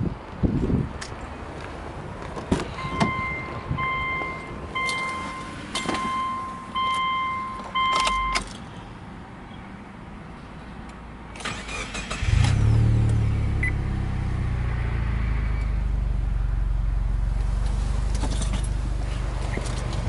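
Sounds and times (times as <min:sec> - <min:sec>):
car warning chime beeping: 0:02.8 - 0:08.4.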